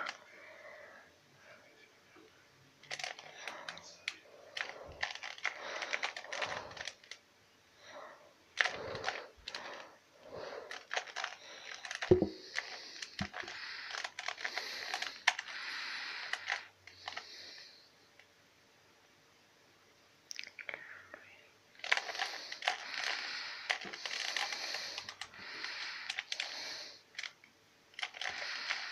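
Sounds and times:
puzzle cube clicking: 2.8s - 7.2s, 8.6s - 9.8s, 10.7s - 15.6s, 21.8s - 25.3s, 26.0s - 26.5s, 27.1s - 28.9s.

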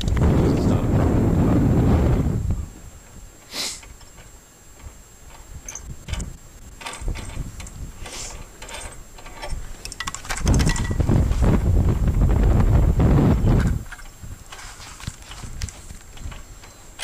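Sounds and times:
faint wind rumble: 0.0s - 17.0s
mechanical clicks and knocks: 3.8s - 11.1s.

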